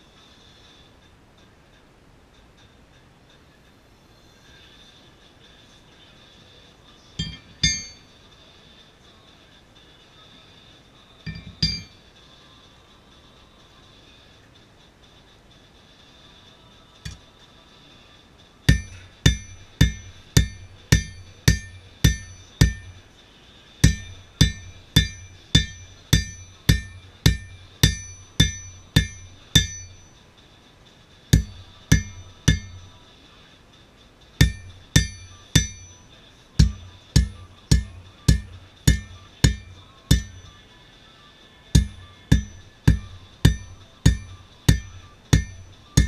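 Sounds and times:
hammer striking anvil: 7.2s - 8.1s, 11.3s - 12.0s, 18.7s - 23.1s, 23.8s - 30.1s, 31.4s - 33.0s, 34.4s - 40.6s, 41.8s - 46.0s.

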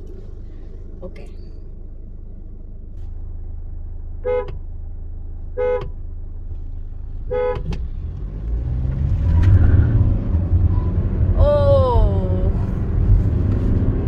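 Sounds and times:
car engine accelerating: 0.0s - 14.0s
car horn toots: 4.2s - 4.6s, 5.6s - 6.0s, 7.3s - 7.8s.

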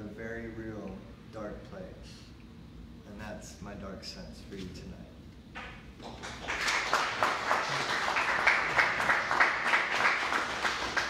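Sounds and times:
audience applauding: 6.0s - 11.0s.

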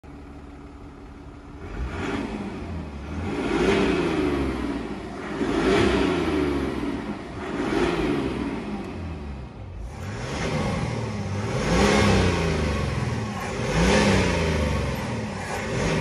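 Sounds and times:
diesel engine idling and revving: 0.0s - 16.0s.

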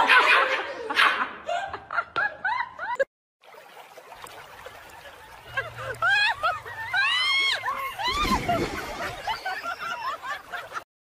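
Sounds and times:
water flowing over weir: 3.4s - 10.8s.

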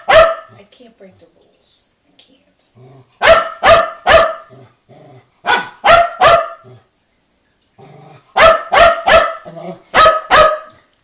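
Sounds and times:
dog barking: 0.0s - 0.6s, 3.2s - 4.6s, 5.4s - 6.8s, 8.4s - 10.8s
dog grumbling: 2.8s - 3.2s, 4.5s - 5.3s, 7.8s - 8.3s, 9.4s - 9.9s.

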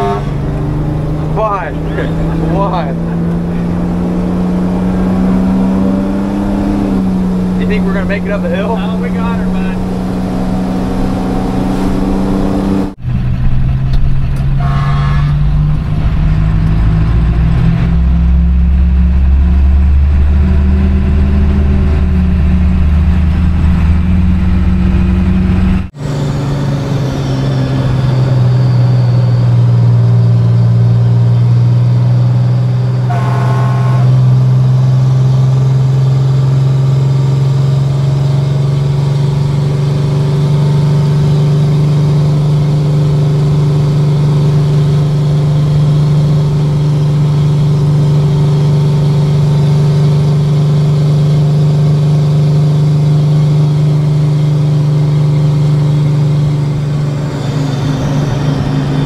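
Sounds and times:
diesel engine running: 0.0s - 59.0s
brief higher tones: 33.0s - 34.6s.

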